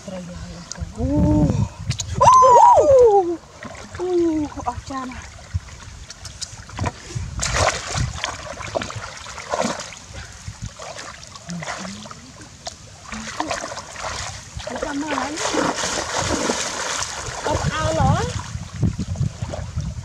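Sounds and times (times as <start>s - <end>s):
feet wading through water: 2.3s - 20.0s
hands splashing in water: 5.9s - 10.0s, 10.8s - 18.5s.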